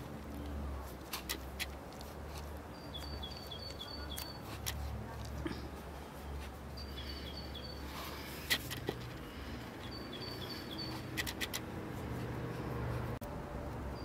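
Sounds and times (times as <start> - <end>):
small bird chirping: 2.7 - 4.5, 6.7 - 8.5, 9.4 - 11.6.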